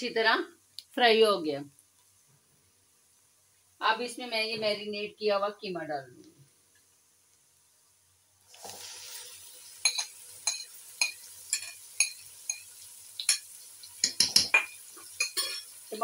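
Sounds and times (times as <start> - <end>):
meat sizzling in oil: 8.4 - 16.0
spoon clanking against pot: 9.8 - 15.8.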